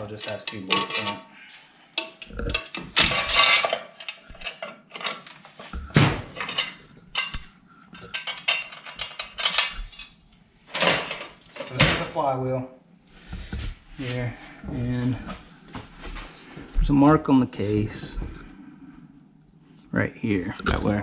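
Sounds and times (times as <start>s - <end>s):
metal tools clinking and scraping: 0.0s - 1.3s, 2.0s - 12.1s.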